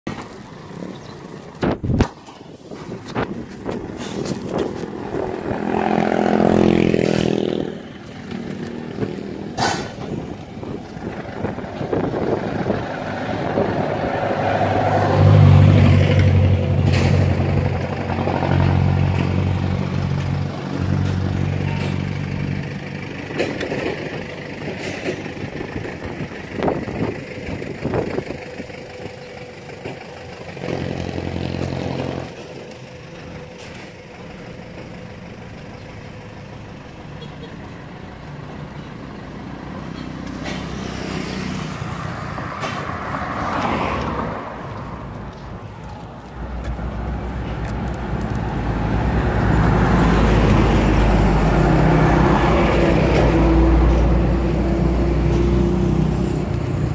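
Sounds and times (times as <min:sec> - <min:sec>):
vehicle passing: 0:04.0 - 0:23.0, 0:39.0 - 0:56.9
heavy engine running low: 0:15.4 - 0:40.7, 0:45.1 - 0:56.9.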